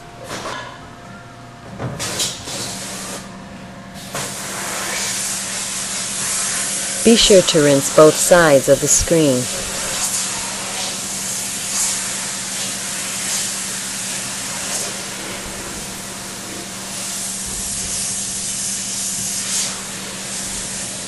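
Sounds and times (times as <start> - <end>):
high-pressure water jet hissing: 4.1 - 7.1, 9.5 - 21.0.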